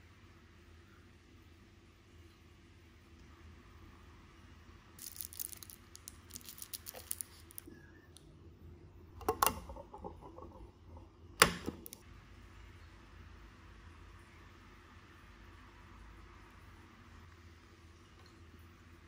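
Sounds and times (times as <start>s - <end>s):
drink package crinkling: 5.0s - 7.7s.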